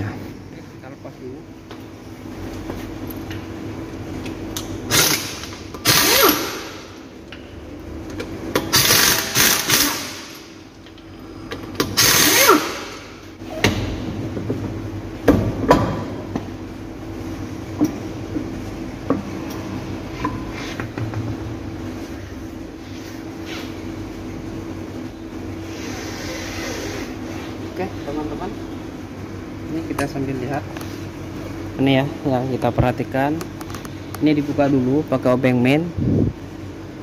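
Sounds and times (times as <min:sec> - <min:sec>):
steady background hum: 0:00.0 - 0:37.0
impact wrench rattling: 0:08.6 - 0:10.4.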